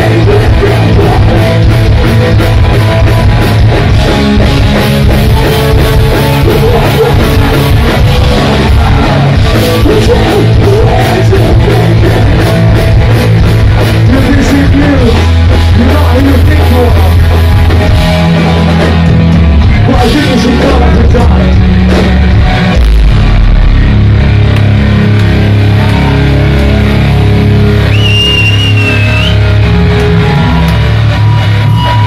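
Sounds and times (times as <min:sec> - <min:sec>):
punk band playing: 0:00.0 - 0:32.0
high held tone: 0:25.9 - 0:32.0.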